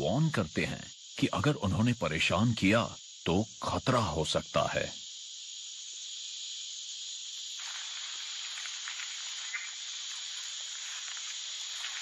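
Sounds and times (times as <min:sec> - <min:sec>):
snake high-pitched warning sound: 0:04.1 - 0:12.0.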